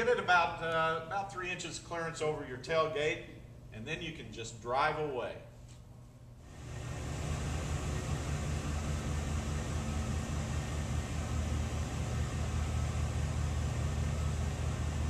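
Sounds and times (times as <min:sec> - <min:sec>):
truck engine running at low revs: 0:06.4 - 0:15.0.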